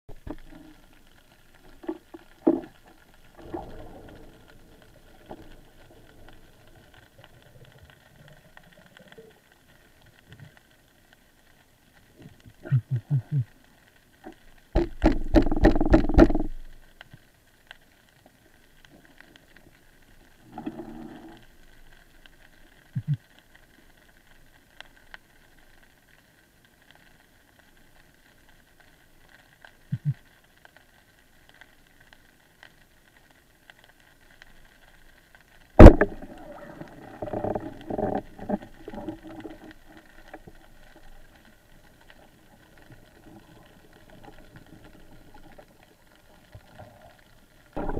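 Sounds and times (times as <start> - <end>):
spear knocking and rattling on rocks: 14.8 - 16.6, 35.8 - 36.3.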